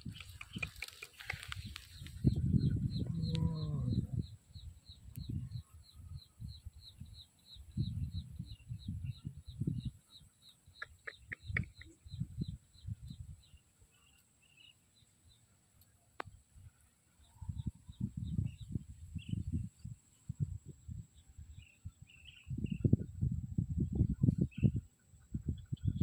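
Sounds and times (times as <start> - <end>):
rustling on dry grass: 0.0 - 2.2
sharp clicks: 0.0 - 2.2.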